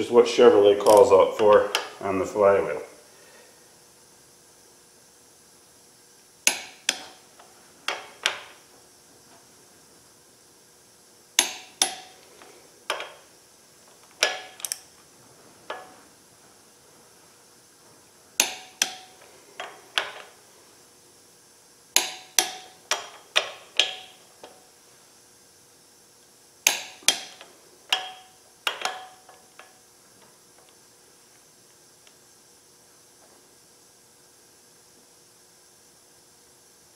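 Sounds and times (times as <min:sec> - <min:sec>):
torque wrench clicking: 0:06.4 - 0:07.2, 0:11.4 - 0:12.2, 0:14.2 - 0:14.9.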